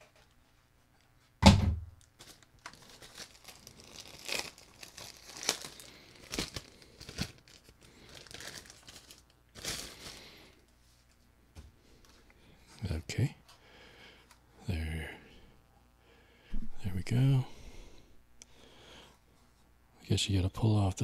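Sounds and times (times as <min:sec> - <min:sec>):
plastic packaging crinkling: 0:02.0 - 0:11.2.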